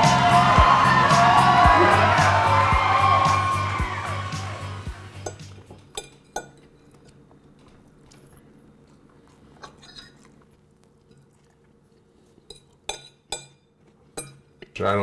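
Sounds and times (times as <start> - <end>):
fork clinking on plate: 5.2 - 7.1.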